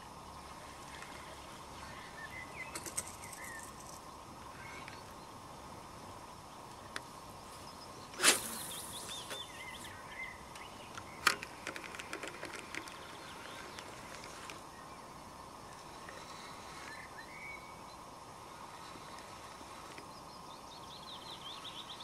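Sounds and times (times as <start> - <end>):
birds singing: 0.0 - 22.0
small ticks: 10.5 - 14.6.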